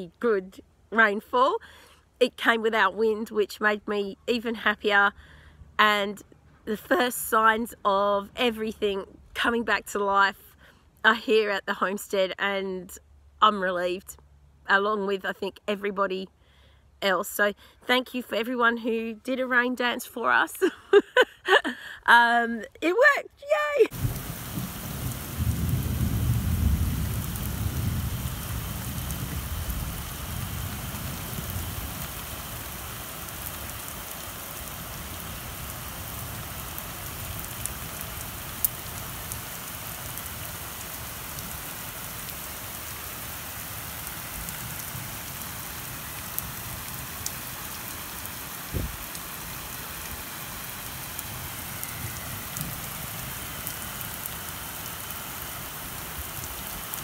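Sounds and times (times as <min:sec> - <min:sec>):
rain falling on wet ground: 0:23.5 - 0:57.0.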